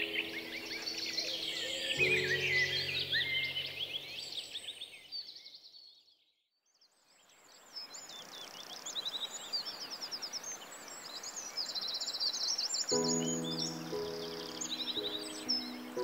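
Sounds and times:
birds trilling calls: 0.0 - 5.0, 12.6 - 16.0
faint outdoor hiss: 0.0 - 5.3, 6.8 - 16.0.

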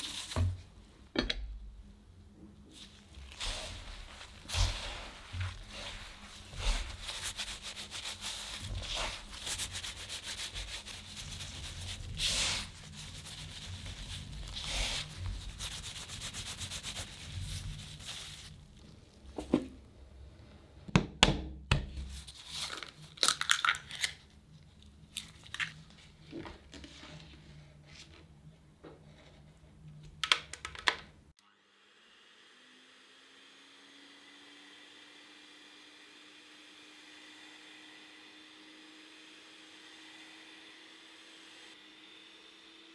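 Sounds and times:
gritty rustling of flour: 2.7 - 19.3.

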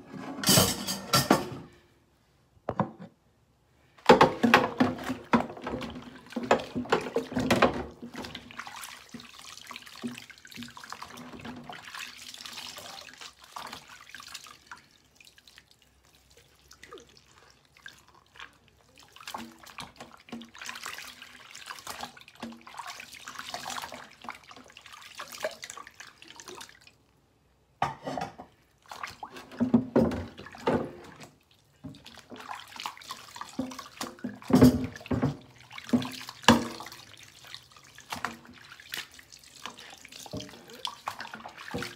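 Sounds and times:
dishcloth scrubbing dishes: 0.0 - 1.8, 4.0 - 15.1, 16.0 - 26.8, 27.8 - 41.9
dishware knocking and clinking: 0.2 - 1.7
water splashing and dripping: 4.1 - 27.2, 28.6 - 41.9.

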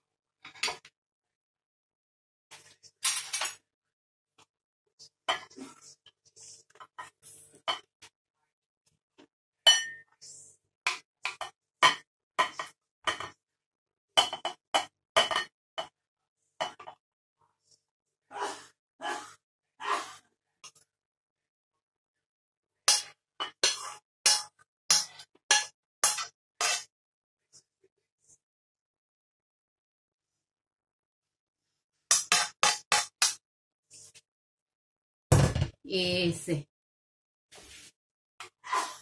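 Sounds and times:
metal spoon clinking on pan and bowl: 9.7 - 10.0, 22.9 - 26.9.

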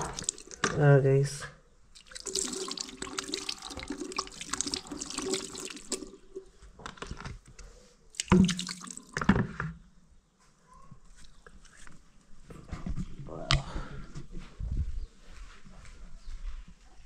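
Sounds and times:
water splashing into sink: 0.0 - 0.8, 2.0 - 6.5, 8.1 - 9.4.

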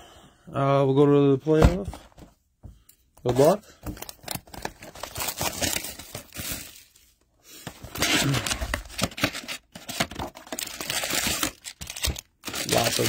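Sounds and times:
plastic shrink-wrap tearing: 8.0 - 13.0.

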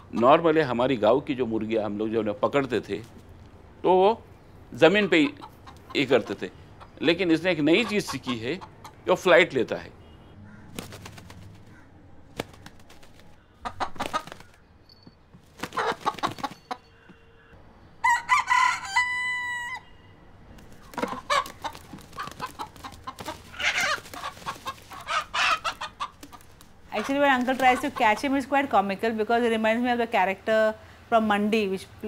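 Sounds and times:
chicken clucks and squawks: 4.8 - 9.0, 13.5 - 14.6, 15.6 - 17.2, 18.0 - 19.9, 20.7 - 28.4
rooster crowing: 18.0 - 20.1.

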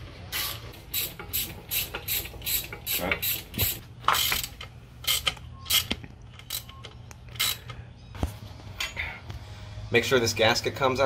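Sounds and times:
ratchet wrench clicking: 0.4 - 6.7, 7.3 - 7.8.

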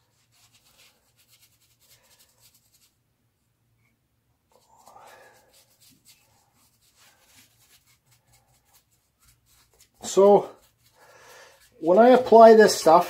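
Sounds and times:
foam brush scratching on wood: 4.6 - 13.0.

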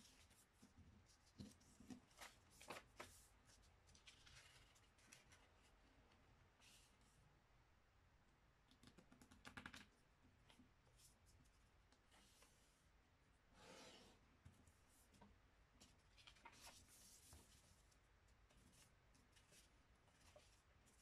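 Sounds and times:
paper rustling and creasing: 1.2 - 5.8, 15.8 - 21.0.

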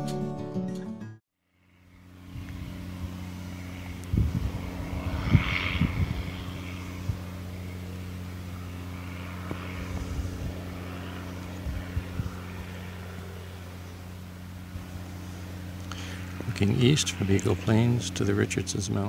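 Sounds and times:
diesel generator humming: 1.6 - 19.0.

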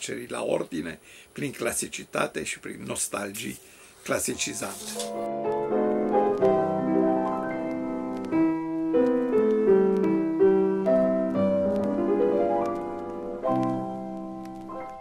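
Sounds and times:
solo piano music: 4.2 - 15.0.

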